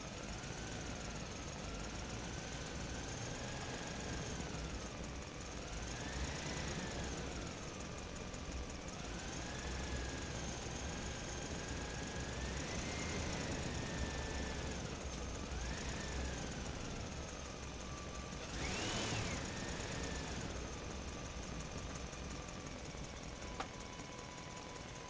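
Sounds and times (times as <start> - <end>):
small electric motor whining: 8.8 - 25.0.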